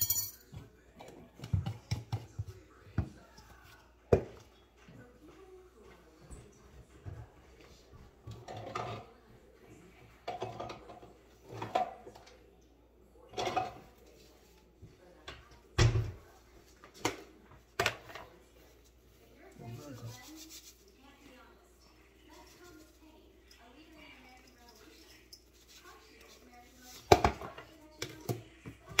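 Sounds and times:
dishes and utensils clattering: 0:00.0 - 0:02.5, 0:08.0 - 0:09.2, 0:10.1 - 0:12.4, 0:13.2 - 0:14.3.

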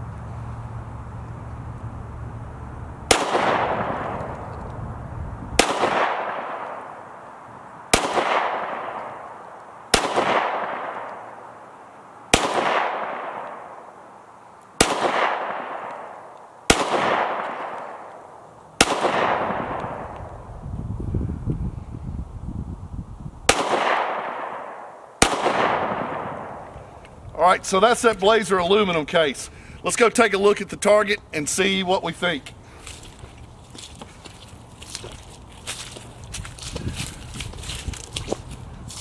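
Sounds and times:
gunshot echo: 0:03.1 - 0:04.3, 0:05.6 - 0:07.0, 0:07.9 - 0:09.3, 0:09.9 - 0:11.4, 0:12.3 - 0:13.8, 0:14.8 - 0:18.1, 0:18.8 - 0:20.2, 0:23.5 - 0:26.7
pistol shots: 0:03.1 - 0:04.3, 0:05.6 - 0:07.0, 0:07.9 - 0:11.4, 0:12.3 - 0:13.8, 0:14.8 - 0:18.2, 0:18.8 - 0:20.2, 0:23.5 - 0:26.7.

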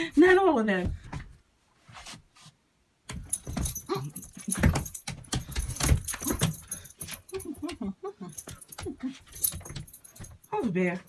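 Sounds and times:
metallic jingling: 0:03.1 - 0:11.0.

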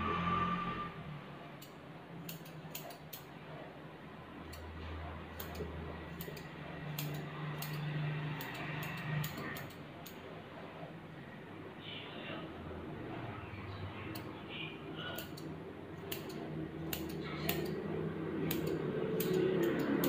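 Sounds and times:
scissors snipping fur: 0:01.6 - 0:03.3, 0:05.3 - 0:10.2, 0:15.1 - 0:20.0.

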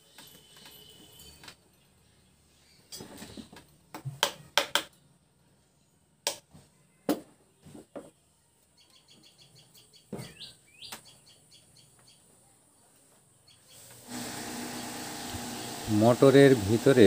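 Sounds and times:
bird chirping: 0:08.7 - 0:12.4, 0:13.3 - 0:14.0.

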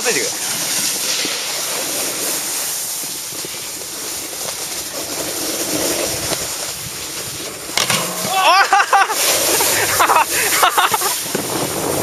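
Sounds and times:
snowboard scraping over snow: 0:00.0 - 0:12.0
wind on microphone: 0:05.8 - 0:12.0.

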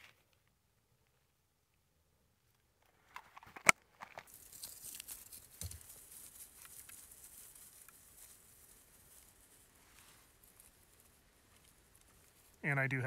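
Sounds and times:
dry tinder crackling: 0:03.6 - 0:13.0.

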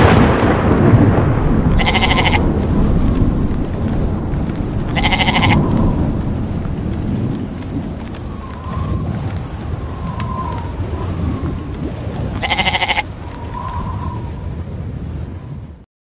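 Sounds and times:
rain and storm: 0:00.0 - 0:15.8
thunder rumble: 0:00.0 - 0:15.8
animal bleating: 0:01.7 - 0:02.4, 0:04.9 - 0:05.6, 0:12.4 - 0:13.1.

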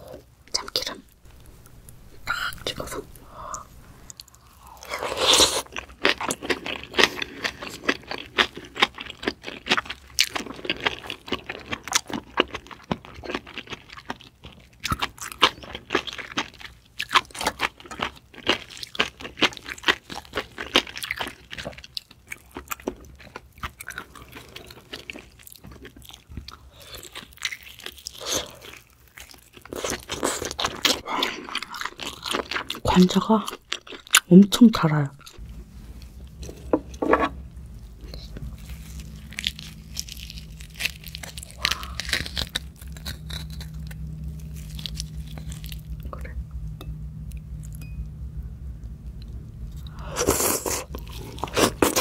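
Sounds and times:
person chewing wet clicks: 0:38.0 - 0:46.4.

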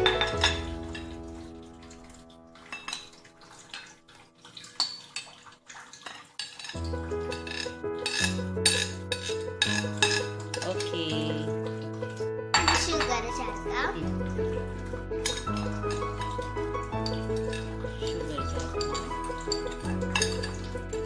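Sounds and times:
background music: 0:00.0 - 0:03.8, 0:06.7 - 0:21.0
liquid pouring: 0:00.0 - 0:21.0
spoon clinking on glass bowl: 0:06.1 - 0:11.0, 0:15.2 - 0:20.7.

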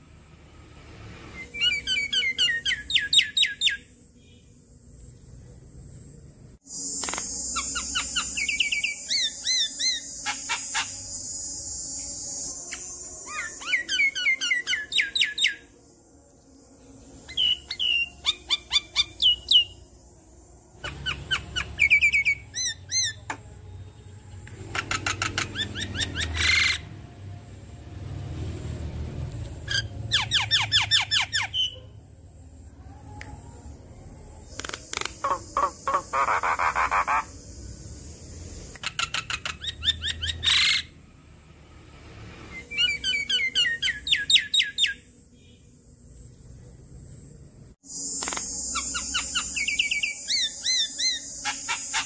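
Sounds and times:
bird singing chirps and whistles: 0:01.3 - 0:04.4, 0:06.8 - 0:15.7, 0:17.2 - 0:19.8, 0:20.8 - 0:23.4, 0:24.8 - 0:26.8, 0:29.7 - 0:31.8, 0:38.8 - 0:40.9, 0:42.5 - 0:45.6, 0:48.2 - 0:52.0
harsh rasping bird call: 0:35.0 - 0:37.3.

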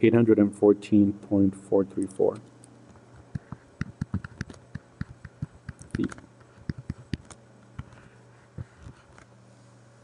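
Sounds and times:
stylus tapping on tablet screen: 0:03.3 - 0:08.0.

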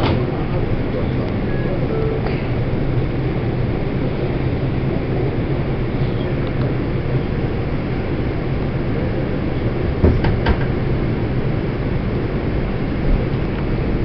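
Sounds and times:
subway car rumble and hiss: 0:00.0 - 0:14.0
sharp knocks: 0:10.0 - 0:10.8.

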